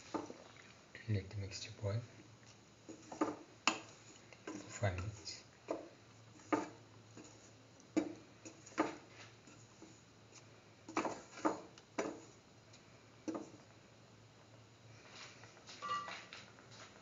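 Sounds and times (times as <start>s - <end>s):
spatula scraping a pan: 2.8s - 12.4s.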